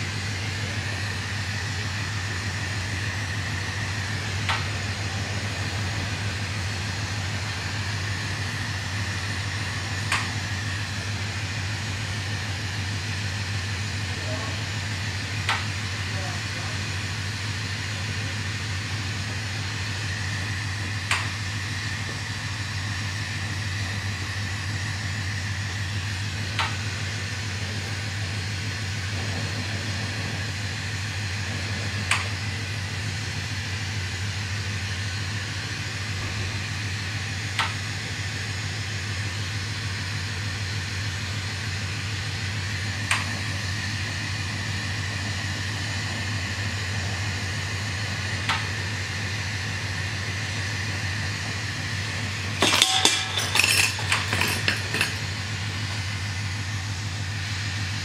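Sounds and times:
shop equipment hum: 0.0 - 58.0.

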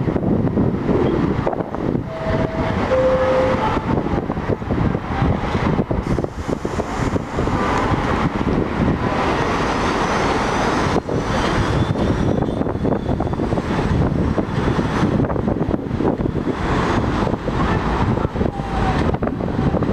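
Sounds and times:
train wheels rumbling on track: 0.0 - 19.9.

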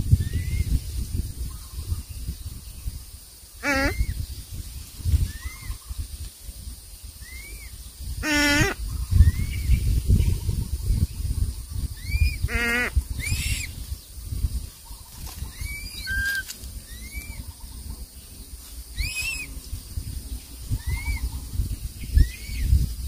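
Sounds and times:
quavering bleat-like call: 3.6 - 4.0
bird chick cheeping: 11.8 - 13.8, 14.8 - 17.9, 19.0 - 19.6.

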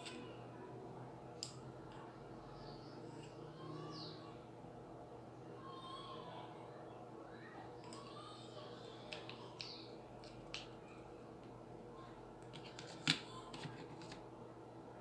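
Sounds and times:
faint steady hum: 0.0 - 15.0
small objects clicking on desk: 9.1 - 10.8.

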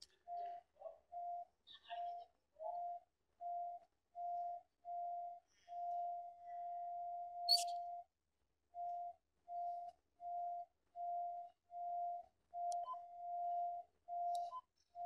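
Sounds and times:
cable locator beeping: 7.4 - 7.8.

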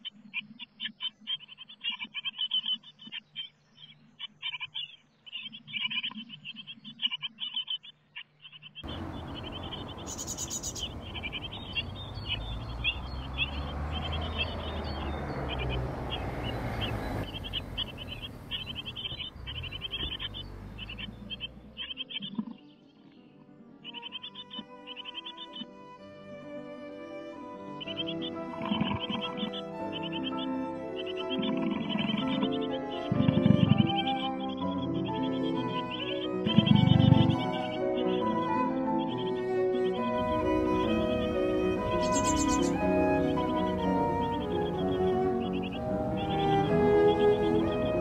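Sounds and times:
nestlings chirping: 0.8 - 23.2, 27.8 - 48.0
low rumbling noise: 8.8 - 21.7.

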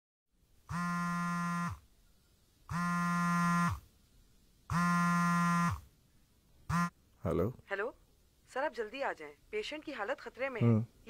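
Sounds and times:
phone vibrating on a table: 0.7 - 1.8, 2.7 - 3.8, 4.7 - 5.8, 6.7 - 6.9.

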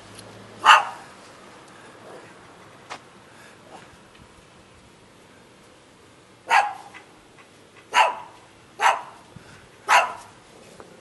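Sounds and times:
small dog barking: 0.6 - 1.1, 6.5 - 7.1, 7.9 - 9.2, 9.9 - 10.3.

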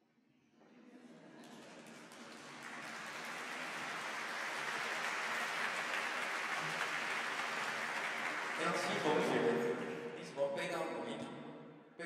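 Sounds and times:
audience applauding: 1.3 - 10.2.

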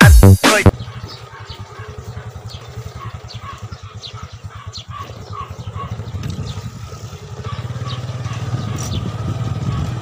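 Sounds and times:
small motorcycle engine running: 0.7 - 10.0.

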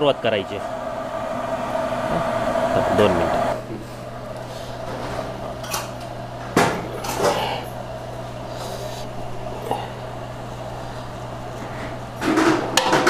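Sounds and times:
steady low hum: 0.0 - 13.0
metal cookware clanking: 12.2 - 13.0.

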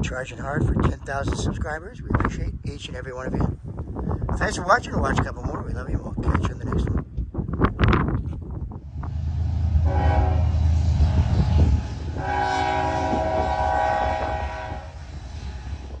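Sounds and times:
low rumble: 7.6 - 16.0
locomotive air horn blasts: 9.2 - 15.8.

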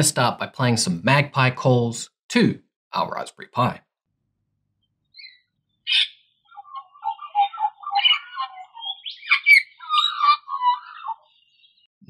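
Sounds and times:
magpie song from phone: 5.2 - 11.8.

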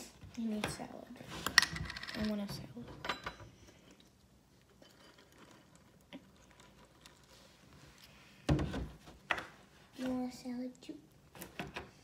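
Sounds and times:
milk pouring onto cereal: 3.9 - 8.1.

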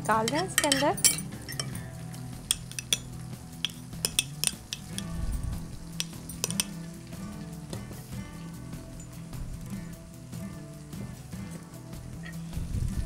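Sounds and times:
fish sizzling in oil: 0.0 - 13.0
spoon clinking against glass: 0.3 - 1.9, 2.5 - 5.2, 5.9 - 6.9.

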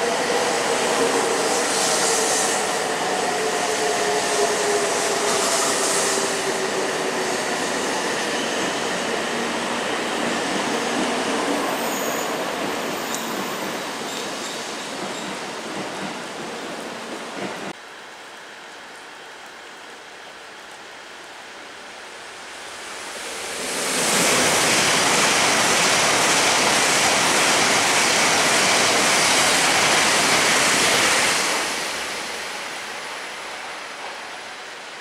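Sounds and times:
high-speed train rushing past: 0.0 - 17.8, 22.6 - 35.0.

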